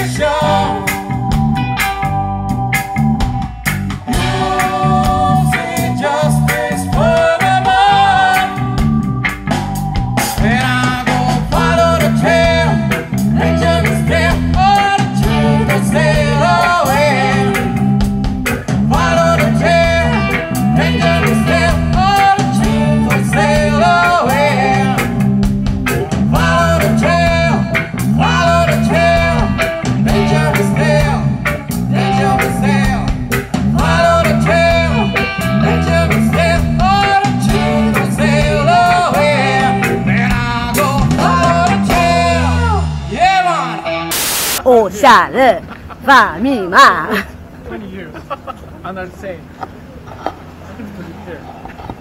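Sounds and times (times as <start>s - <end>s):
person singing: 0.0s - 1.3s, 4.1s - 8.9s, 10.3s - 17.9s, 18.8s - 25.2s, 26.0s - 45.5s
reggae band playing: 0.0s - 50.7s.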